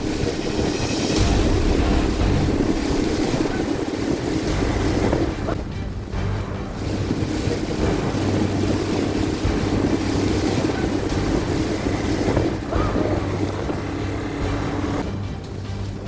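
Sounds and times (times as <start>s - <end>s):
outboard motor humming: 0.0s - 16.0s
water rushing and splashing: 0.0s - 16.0s
wind buffeting microphone: 0.0s - 16.0s.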